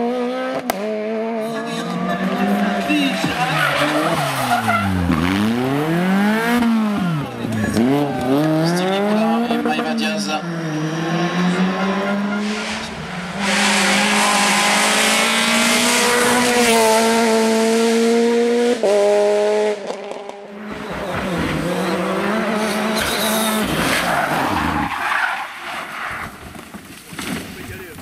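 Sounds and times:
rally car engine at high revs: 0.0 - 25.3.

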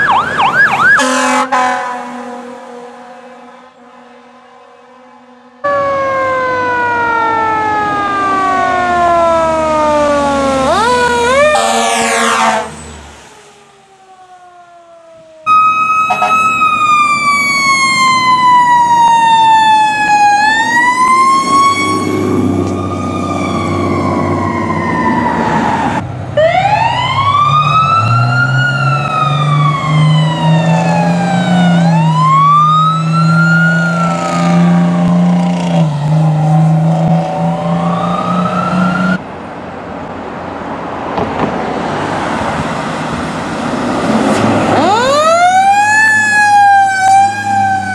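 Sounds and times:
fire truck sirens wailing: 0.0 - 47.9
road and engine noise: 0.0 - 47.9.

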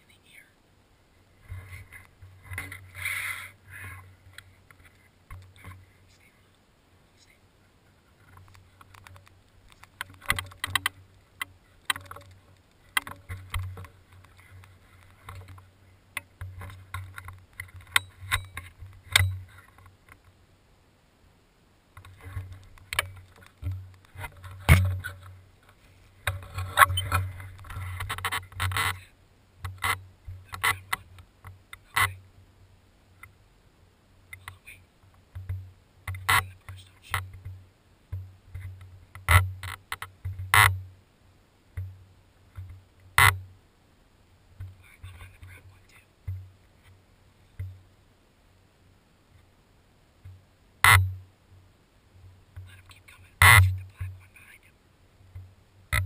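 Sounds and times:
rustling: 0.0 - 20.4, 21.9 - 32.4
sharp clicks: 8.3 - 15.6.

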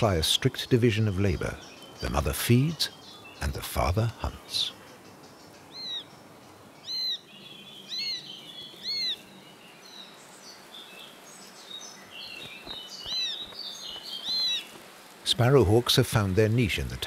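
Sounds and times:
small songbirds twittering: 0.0 - 17.0
bird chick begging call: 5.7 - 6.1, 6.8 - 9.2.

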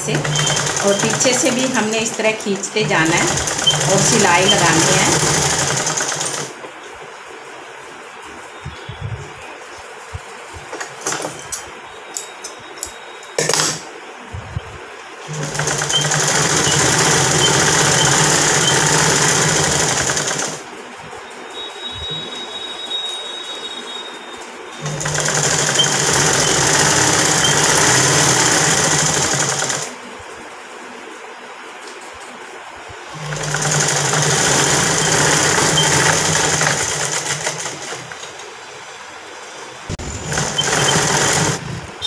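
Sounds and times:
sewing machine running: 0.0 - 6.6, 15.3 - 20.9, 24.8 - 30.0, 33.1 - 38.3, 39.9 - 41.8.

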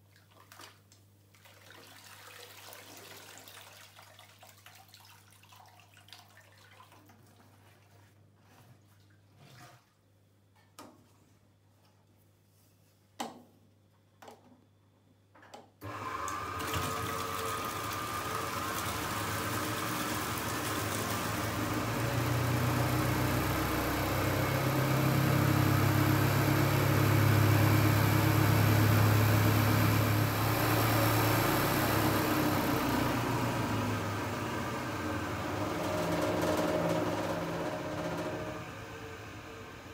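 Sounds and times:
water gushing into tub: 1.3 - 8.1, 16.3 - 35.7
spin dryer motor hum: 15.8 - 39.9.

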